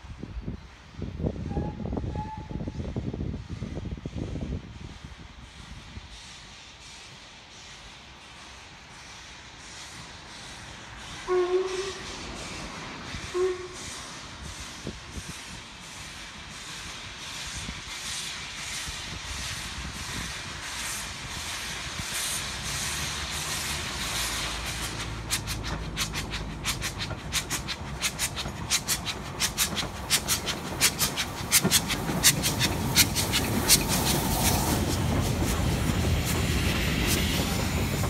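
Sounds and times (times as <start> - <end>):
heavy train rumble: 0.0 - 38.0
steam locomotive exhaust chuffs: 0.7 - 38.0
wheels clicking over rail joints: 23.3 - 38.0.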